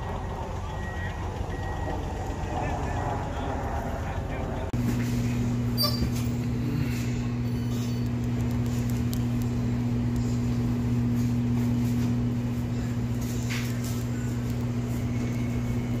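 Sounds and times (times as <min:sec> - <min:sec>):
low electrical hum: 0:04.5 - 0:16.0.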